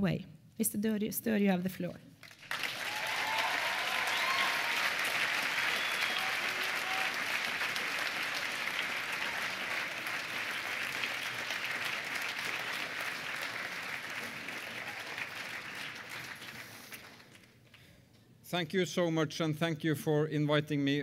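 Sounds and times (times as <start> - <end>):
audience applauding: 2.2 - 17.8.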